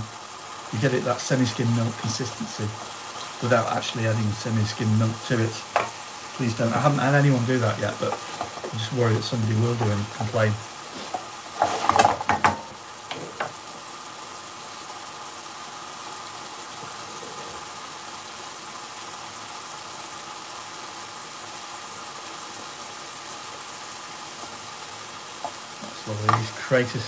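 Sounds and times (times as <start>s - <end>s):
sauce bubbling and sizzling: 0.0s - 27.0s
wooden spatula knocking pan: 5.7s - 6.0s, 7.9s - 8.8s, 9.7s - 10.4s, 11.0s - 13.6s, 25.4s - 26.6s.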